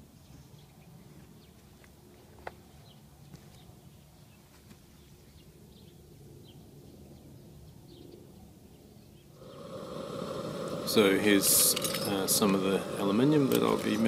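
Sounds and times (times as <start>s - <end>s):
faint birds chirping: 0.0s - 14.0s
loud noise: 9.4s - 14.0s
low outdoor rumble: 9.4s - 14.0s.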